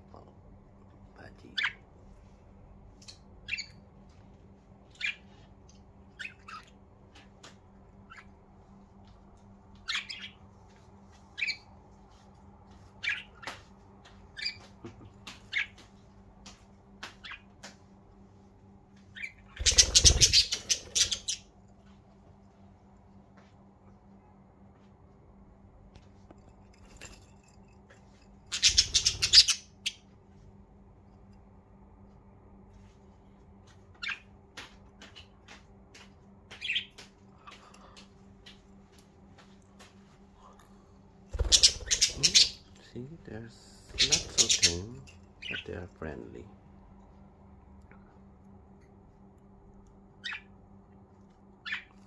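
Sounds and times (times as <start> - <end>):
budgerigars chirping: 19.2 - 21.4, 28.5 - 30.0, 41.4 - 42.7, 43.9 - 45.7, 50.2 - 50.5
rapid budgie wingbeats: 19.2 - 21.5, 28.5 - 30.0, 34.0 - 38.6, 41.3 - 42.7, 43.5 - 45.7.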